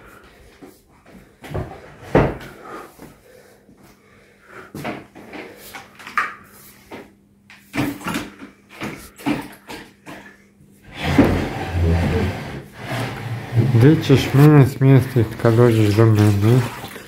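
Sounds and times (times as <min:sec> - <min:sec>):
chairs shifted on wooden floor: 0:10.9 - 0:15.8
broom knocking and scraping: 0:10.9 - 0:16.4.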